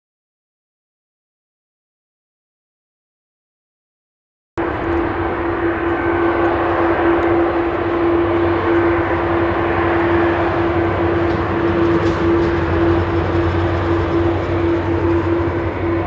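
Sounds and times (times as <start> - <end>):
constant droning tone: 4.6 - 16.0
jet engines running: 4.6 - 16.0
low hum: 4.6 - 16.0.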